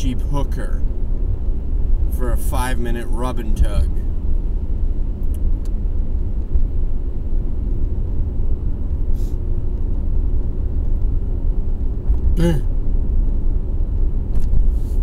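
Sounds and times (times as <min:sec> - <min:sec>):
car engine and road noise: 0:00.0 - 0:15.0
brief hiss: 0:09.1 - 0:09.4.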